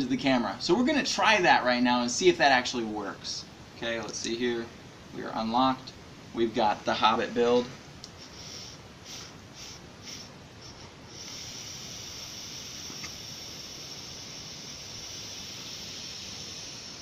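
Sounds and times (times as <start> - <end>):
vape hissing: 8.2 - 17.0.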